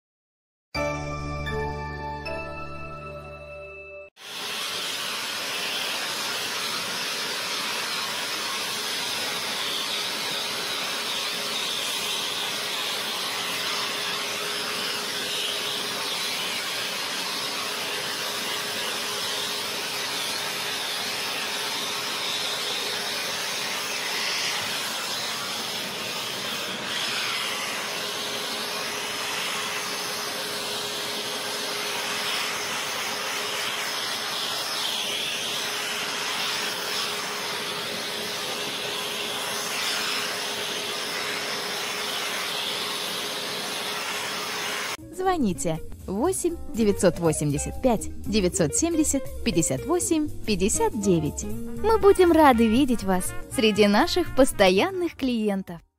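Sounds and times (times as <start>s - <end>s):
steam cleaner hissing: 4.2s - 45.0s.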